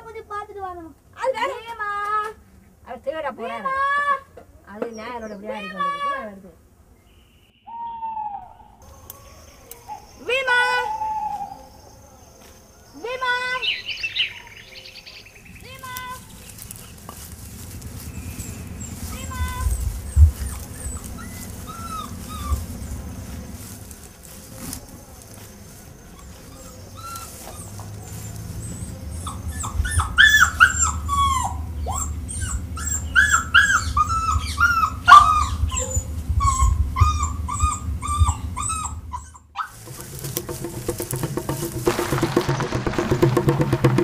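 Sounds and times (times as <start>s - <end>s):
low steady rumble: 15.4s - 25.2s, 25.9s - 39.2s
dog whimpering and yelping: 18.8s - 22.9s, 26.1s - 39.8s.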